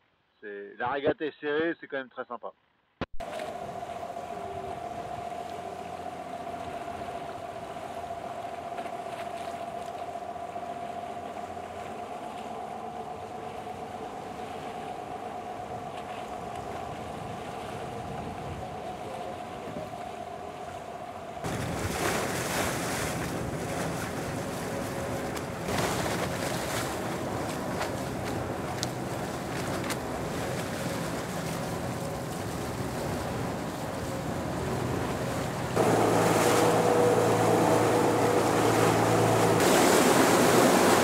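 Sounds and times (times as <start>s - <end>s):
boat motor hum: 3.1s - 41.0s
rushing water: 3.2s - 41.0s
waves splashing: 3.2s - 41.0s
wind buffeting microphone: 11.1s - 41.0s.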